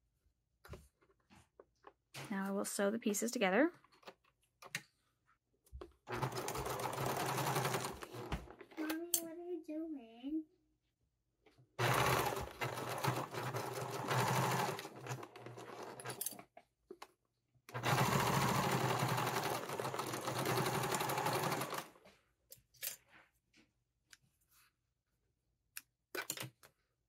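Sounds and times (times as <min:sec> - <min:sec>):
sewing machine stitching: 0:06.1 - 0:08.7, 0:11.8 - 0:16.4, 0:17.7 - 0:22.0.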